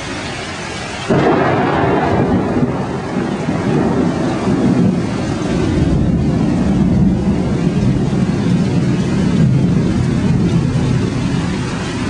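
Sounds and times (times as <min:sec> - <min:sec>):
floodwater rushing: 0:00.0 - 0:12.0
torrential rain pouring: 0:00.0 - 0:12.0.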